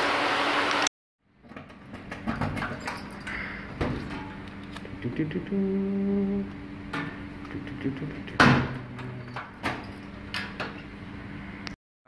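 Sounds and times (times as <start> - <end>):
machinery hum: 2.0 - 11.7
metal door clunk shut: 8.3 - 10.8.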